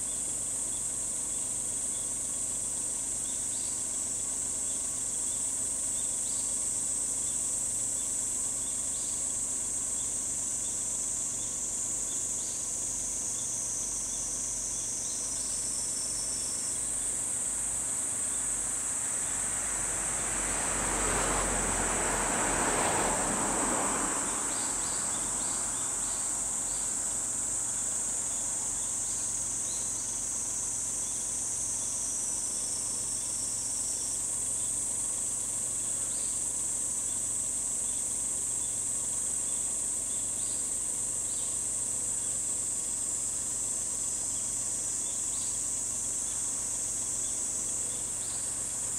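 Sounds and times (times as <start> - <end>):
insects droning: 0.0 - 48.9.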